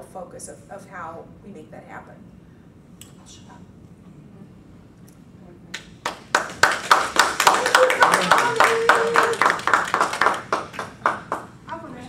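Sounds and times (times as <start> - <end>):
small group applauding: 5.7 - 11.6.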